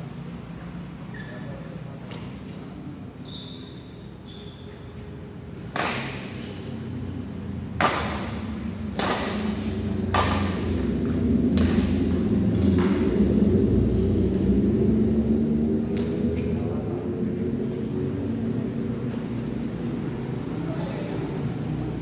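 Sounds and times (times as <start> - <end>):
badminton racket hitting shuttlecock: 5.6 - 7.0, 7.7 - 12.2.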